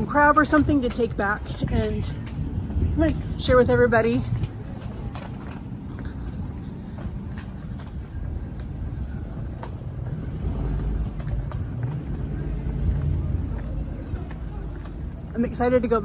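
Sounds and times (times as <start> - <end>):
footsteps on sidewalk: 0.0 - 16.0
low street rumble: 0.0 - 16.0.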